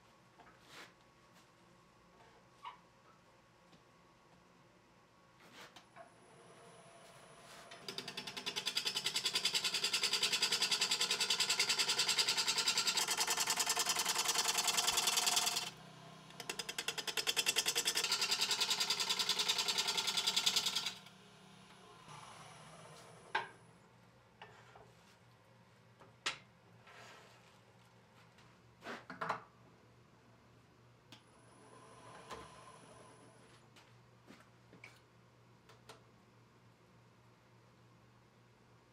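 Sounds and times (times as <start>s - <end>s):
lathe gouge cutting wood: 10.4s - 15.7s, 17.9s - 21.0s.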